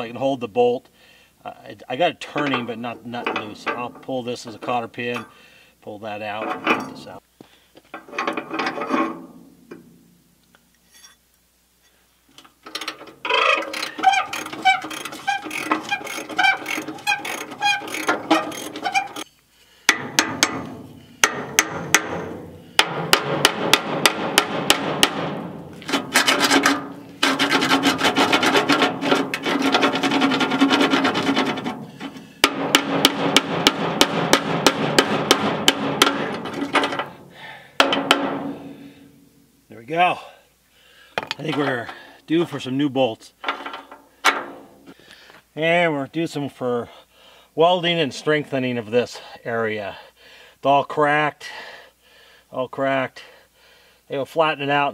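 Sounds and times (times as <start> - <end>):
hammer tapping on steel: 19.9 - 25.2.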